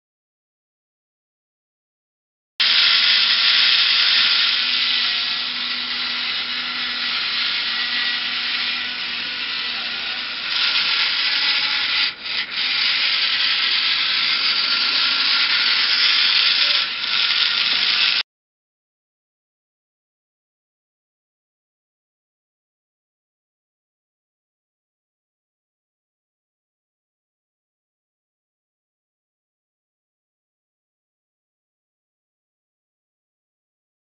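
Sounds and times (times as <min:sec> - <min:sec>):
small electric motors whirring: 0:02.6 - 0:18.2.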